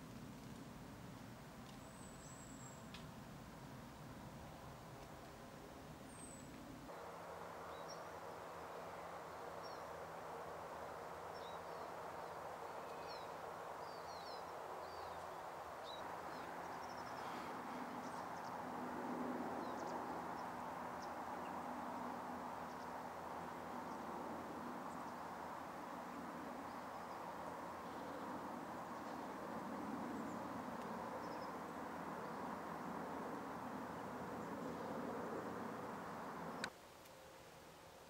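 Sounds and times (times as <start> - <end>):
small birds chirping: 11.2 - 18.7, 19.6 - 36.7.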